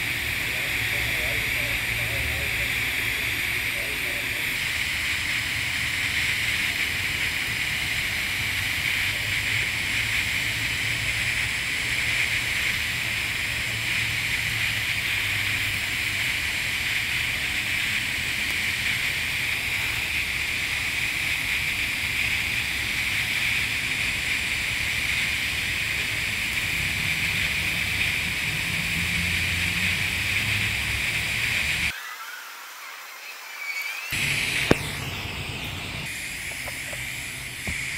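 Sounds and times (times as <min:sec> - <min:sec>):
welding arc hissing: 0:00.0 - 0:32.0, 0:34.1 - 0:37.9.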